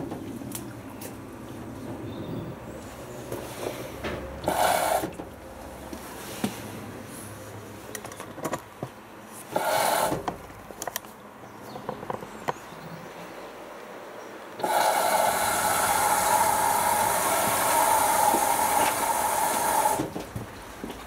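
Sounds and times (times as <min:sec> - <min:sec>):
washing machine running hum: 0:00.0 - 0:07.0, 0:14.6 - 0:21.0
laundry swishing in washing machine: 0:14.6 - 0:21.0.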